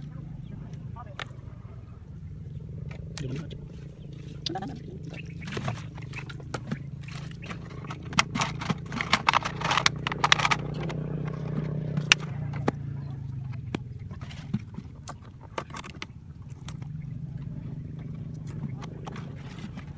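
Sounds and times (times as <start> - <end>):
low hum: 0.0 - 19.9
plastic bottles crinkling: 4.4 - 12.6.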